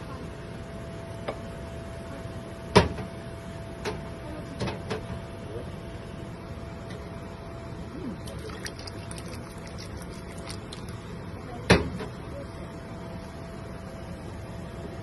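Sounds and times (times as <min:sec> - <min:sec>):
steady hum: 0:07.2 - 0:15.0
spoon stirring in metal pot: 0:08.3 - 0:11.0.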